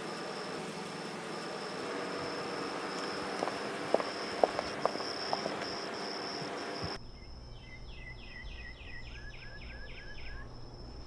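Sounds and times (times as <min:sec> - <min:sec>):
high insect buzz: 0:00.0 - 0:11.0
bird singing whistled notes: 0:07.0 - 0:11.0.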